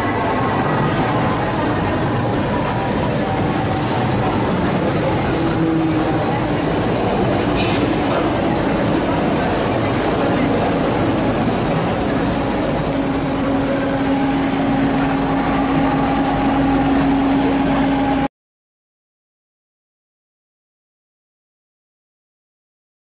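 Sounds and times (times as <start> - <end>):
electric train passing: 0.0 - 18.3
steady humming tone: 0.0 - 18.3.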